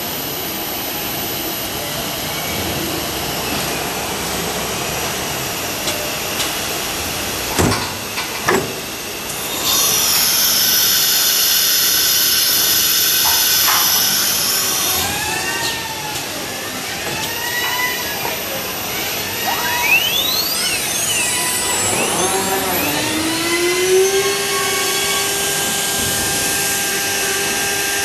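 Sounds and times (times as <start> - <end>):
router spindle cutting wood: 9.4 - 16.0, 16.6 - 28.0
short whines rising and falling: 17.3 - 27.6.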